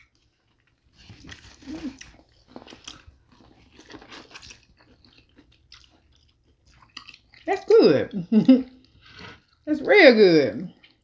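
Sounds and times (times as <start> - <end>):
crunchy chewing: 0.0 - 7.6.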